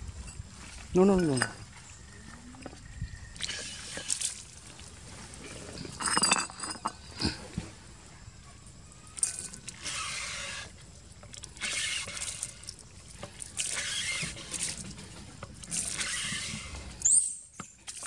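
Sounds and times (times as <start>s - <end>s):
water gushing from pipe: 3.2s - 6.2s, 9.1s - 18.0s
water splashing on ground: 3.3s - 5.5s, 9.1s - 16.7s.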